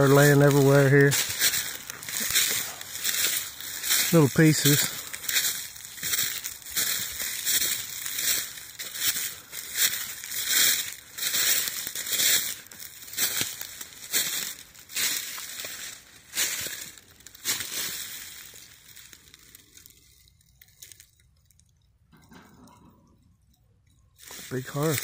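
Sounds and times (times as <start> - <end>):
footsteps crunching dry leaves: 0.0 - 21.2, 24.2 - 25.0.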